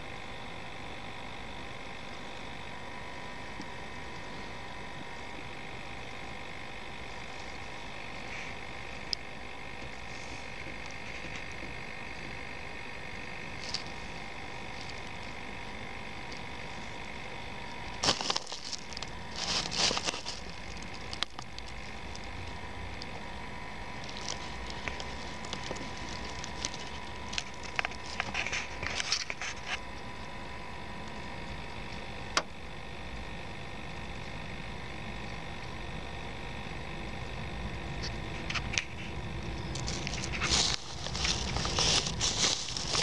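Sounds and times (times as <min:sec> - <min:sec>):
faint hum: 0:00.0 - 0:43.0
handling noise rustles and scrapes: 0:17.9 - 0:22.3, 0:24.0 - 0:29.9, 0:38.4 - 0:43.0.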